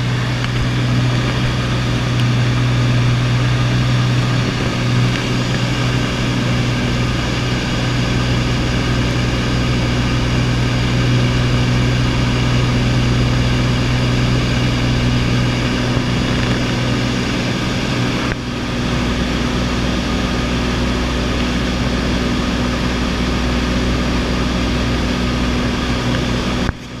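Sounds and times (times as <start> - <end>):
light aircraft engine droning: 0.0 - 27.0.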